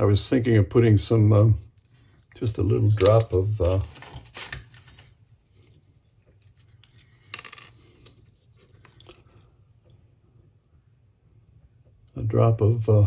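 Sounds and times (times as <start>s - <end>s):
faint clicks and rubs: 3.0s - 7.2s.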